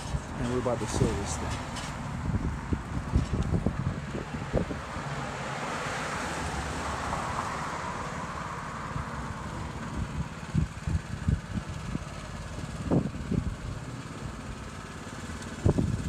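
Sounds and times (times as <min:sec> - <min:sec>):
wind buffeting microphone: 0:00.0 - 0:05.2, 0:09.0 - 0:13.9, 0:15.6 - 0:16.0
passing street traffic: 0:00.0 - 0:16.0.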